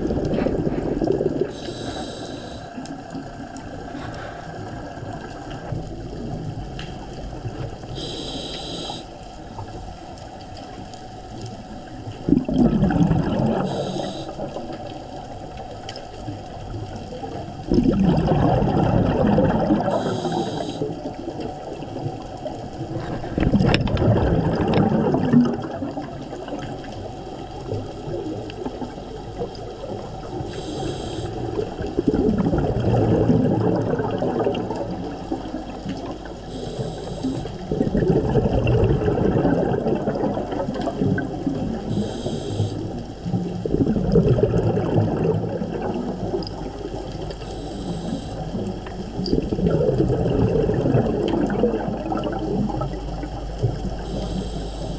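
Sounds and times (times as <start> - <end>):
bubbling exhalation underwater: 0.0 - 1.8, 12.1 - 14.9, 17.2 - 22.2, 22.8 - 26.9, 27.6 - 54.9
regulator hiss on inhalation: 1.5 - 2.9, 7.9 - 9.2, 13.6 - 14.6, 19.9 - 21.0, 30.4 - 31.6, 36.5 - 37.6, 41.8 - 43.0, 47.4 - 48.6, 54.0 - 54.9.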